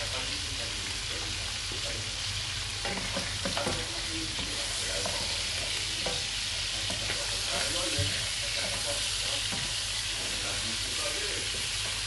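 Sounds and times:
meat sizzling in hot oil: 0:00.0 - 0:12.0
spatula scraping a pan: 0:02.3 - 0:10.9.

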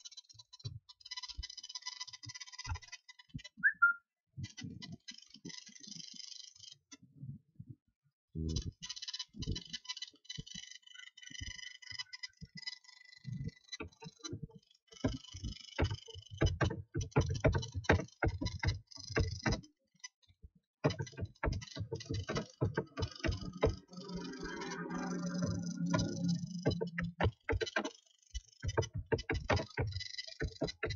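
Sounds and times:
keyboard typing clicks: 0:20.9 - 0:28.0, 0:28.6 - 0:30.9.

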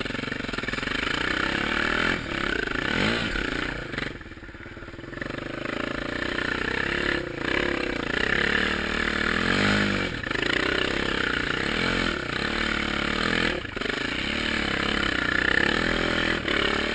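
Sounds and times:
quad bike engine revving: 0:00.0 - 0:16.9.

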